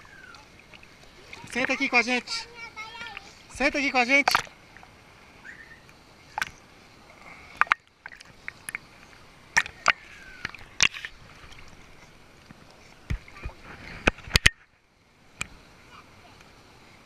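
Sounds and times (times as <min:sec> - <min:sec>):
water lapping and splashing: 0:00.0 - 0:17.0.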